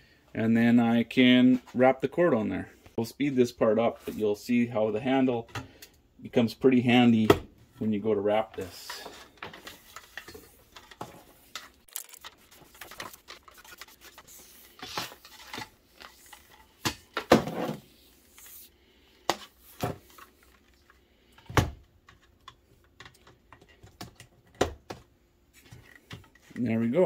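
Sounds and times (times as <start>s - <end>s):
cord and plastic clicking and rubbing: 9.4s - 14.3s.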